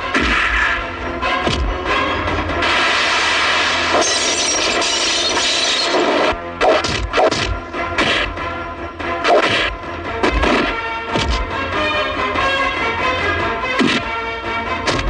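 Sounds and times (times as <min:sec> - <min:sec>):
background music score: 0:00.0 - 0:04.2, 0:06.0 - 0:15.0
dense crashing noise: 0:00.0 - 0:06.4
punch and kick whacks: 0:00.1 - 0:00.6, 0:06.6 - 0:08.3, 0:09.2 - 0:11.5, 0:13.8 - 0:14.2.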